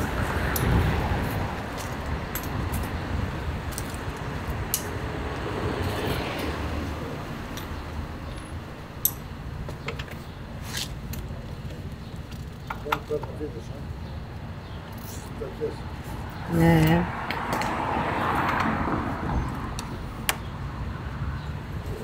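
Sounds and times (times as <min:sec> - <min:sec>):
street traffic rumble: 0:00.0 - 0:22.0
hand tools clicking and clinking: 0:01.7 - 0:03.0.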